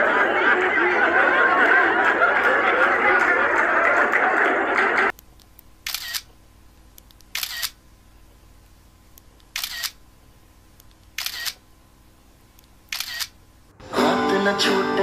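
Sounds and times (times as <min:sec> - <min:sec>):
camera shutter clicks: 0:05.8 - 0:06.3, 0:07.0 - 0:07.8, 0:09.5 - 0:10.0, 0:11.0 - 0:11.6, 0:12.9 - 0:13.4.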